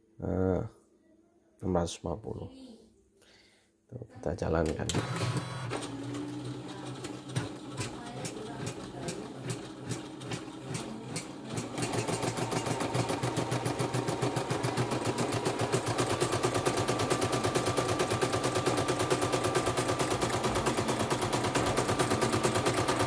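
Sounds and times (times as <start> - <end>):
embroidery machine needle clatter: 6.9 - 23.0.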